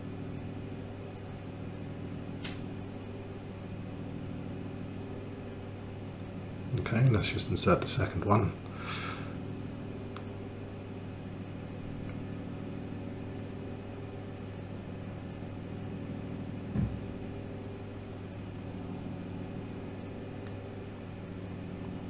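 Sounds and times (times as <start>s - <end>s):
steady low hum: 0.0s - 22.0s
soft thump: 16.7s - 17.0s.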